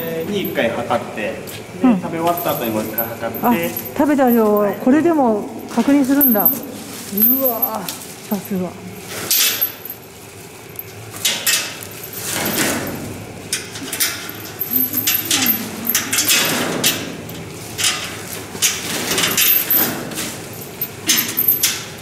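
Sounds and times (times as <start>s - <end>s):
chain clinking against wire mesh: 2.2s - 5.0s, 5.6s - 10.0s, 10.7s - 22.0s
leafy branches rustling: 5.3s - 9.4s.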